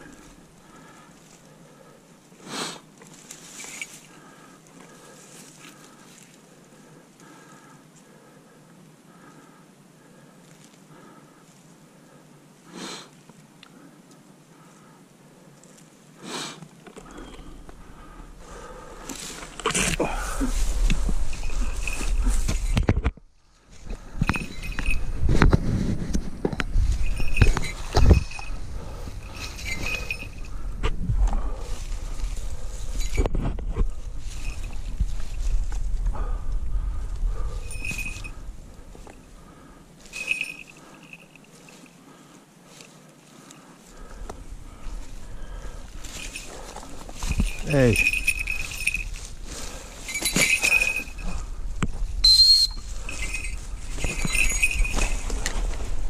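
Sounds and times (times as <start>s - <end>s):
footsteps through grass and leaves: 0.0s - 6.6s, 15.6s - 36.0s, 36.9s - 56.0s
scuffling in leaves: 2.3s - 4.3s, 18.5s - 22.7s, 42.6s - 56.0s
high ringing: 24.1s - 25.4s, 26.8s - 30.7s, 37.4s - 39.2s, 45.9s - 51.5s, 52.2s - 55.6s
short high whistle: 52.2s - 52.9s.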